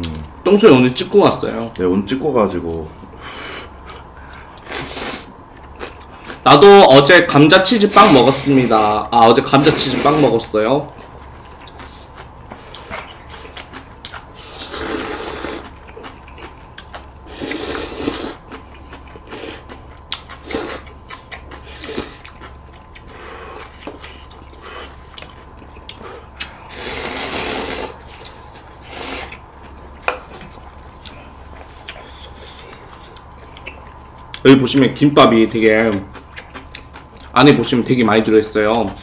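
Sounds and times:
noodle slurping: 14.4 - 15.8, 17.3 - 18.5, 20.3 - 20.9, 26.7 - 29.4.

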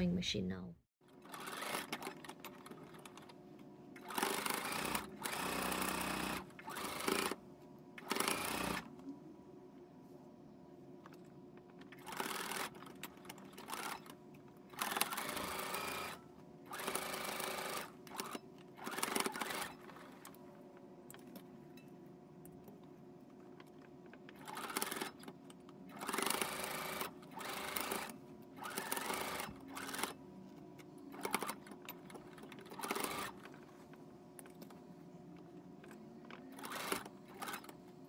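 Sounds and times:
sewing machine stitching: 1.0 - 3.4, 4.0 - 7.4, 8.0 - 8.9, 11.8 - 20.4, 24.2 - 30.2, 31.1 - 33.6, 36.4 - 37.8
faint steady hum: 2.0 - 18.9, 19.8 - 38.0.

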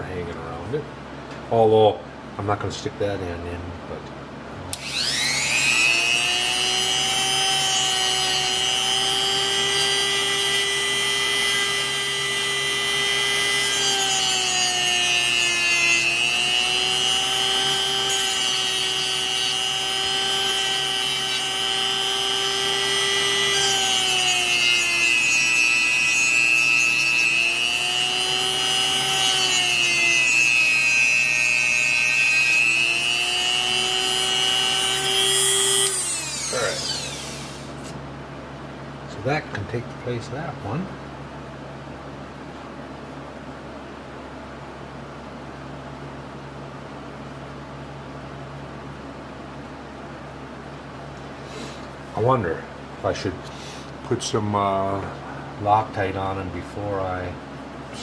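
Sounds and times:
rotary tool high whine: 4.7 - 38.1.

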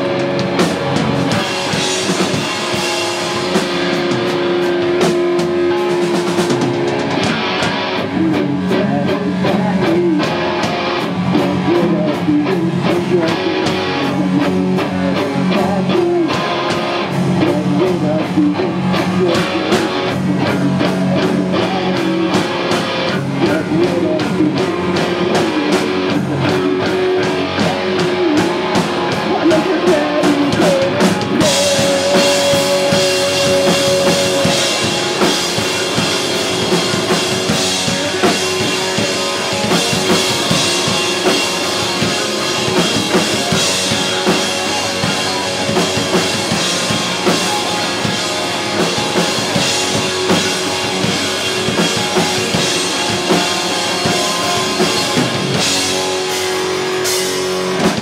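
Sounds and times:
crashing drums: 0.0 - 8.0, 21.0 - 58.0
live rock band playing: 0.0 - 58.0.

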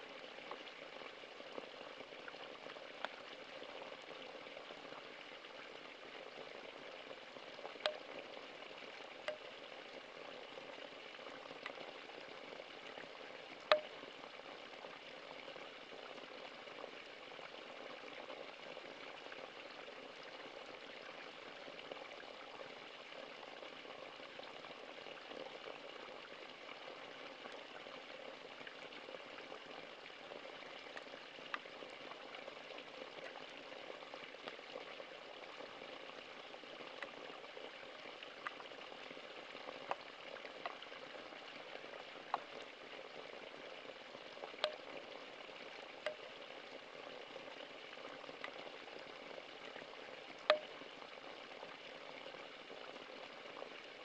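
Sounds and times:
water plinks: 6.7 - 8.5, 9.1 - 12.2, 13.6 - 14.2, 36.6 - 43.3, 43.9 - 51.6.

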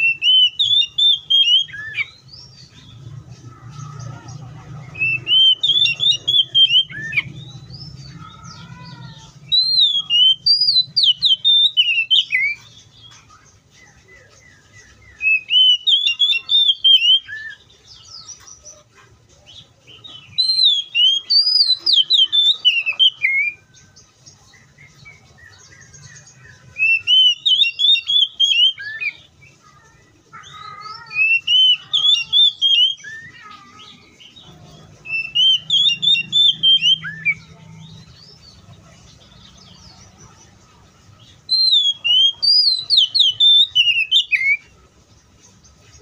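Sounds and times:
bird singing whistled phrases: 0.0 - 2.2, 5.0 - 8.0, 9.4 - 12.6, 14.6 - 17.6, 20.2 - 23.6, 24.8 - 29.3, 30.4 - 34.2, 35.0 - 37.6, 41.4 - 44.7.

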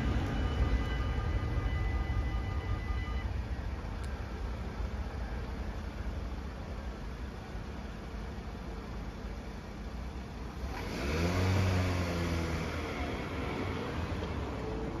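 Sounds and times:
car engine accelerating: 10.5 - 15.0.

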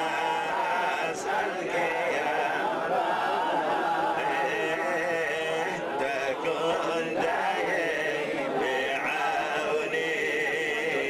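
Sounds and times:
men chanting prayers: 0.0 - 11.0
man chanting into a microphone: 4.2 - 11.0.

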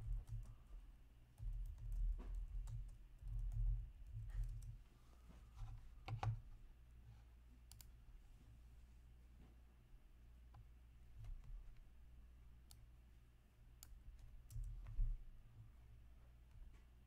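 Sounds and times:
computer keyboard typing: 0.0 - 0.6, 1.4 - 4.8, 14.4 - 14.9.

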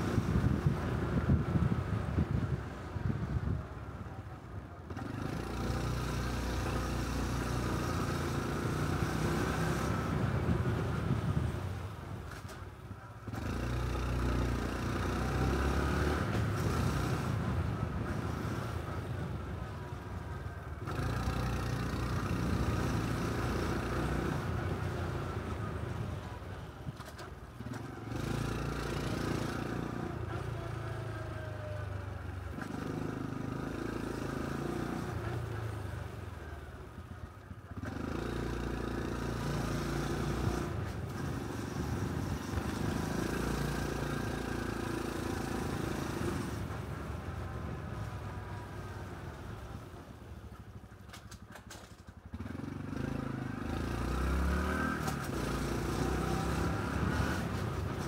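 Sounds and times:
wind noise: 0.0 - 3.9
motorcycle engine and exhaust: 0.0 - 58.0.

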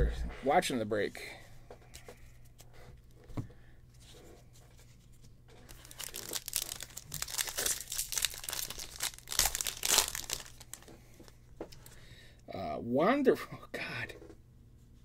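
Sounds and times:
wrapper tearing and crinkling: 5.6 - 10.9.

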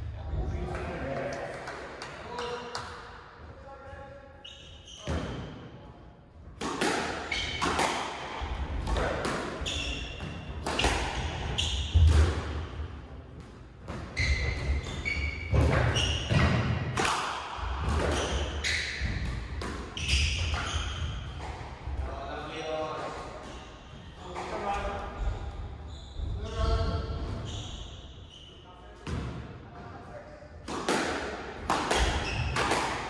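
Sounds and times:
squash ball smacks: 6.6 - 9.6, 15.5 - 18.4, 30.6 - 33.0.

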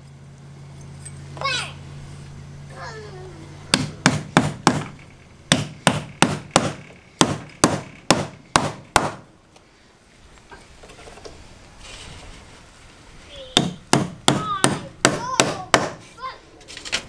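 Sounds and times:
hammer striking metal nail plate: 3.7 - 9.3, 13.6 - 16.0.

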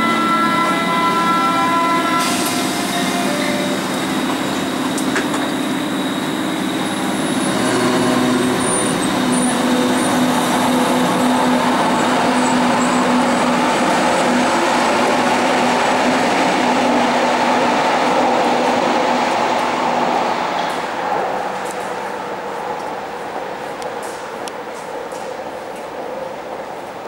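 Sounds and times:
train whining tones: 0.0 - 24.4
train rumbling past: 0.0 - 27.0
train motor hum: 0.4 - 22.0.

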